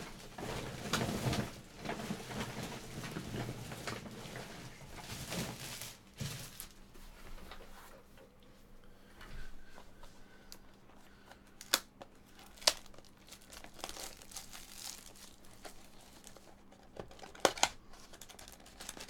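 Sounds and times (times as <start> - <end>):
packaging trash rustling and crackling: 0.0 - 7.7, 11.6 - 19.0.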